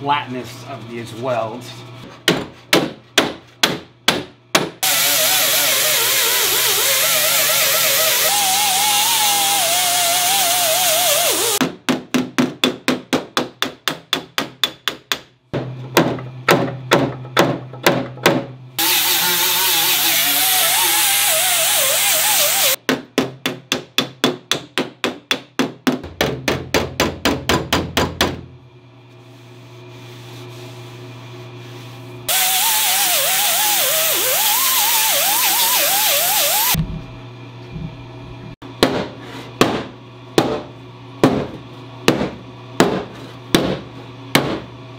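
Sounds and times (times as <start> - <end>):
grinder whining: 4.8 - 11.6, 18.8 - 22.8, 32.3 - 38.6.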